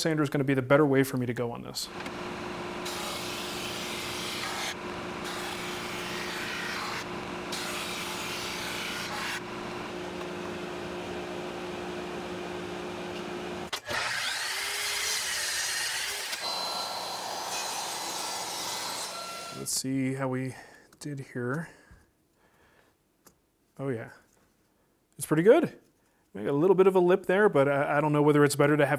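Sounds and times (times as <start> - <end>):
drum sander running: 1.9 - 14.4.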